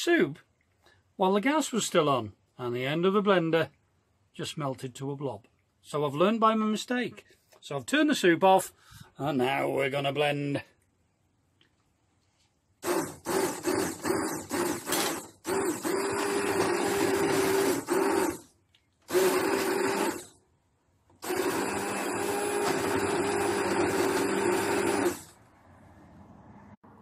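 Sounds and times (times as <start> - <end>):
stick blender running: 12.8 - 20.4, 21.1 - 25.4.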